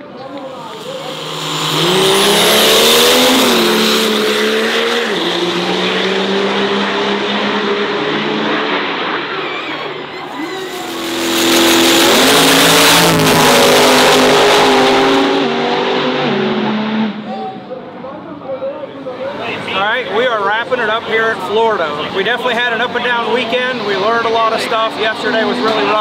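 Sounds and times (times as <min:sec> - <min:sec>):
racing engine at full throttle: 0:00.1 - 0:17.3, 0:20.6 - 0:26.0.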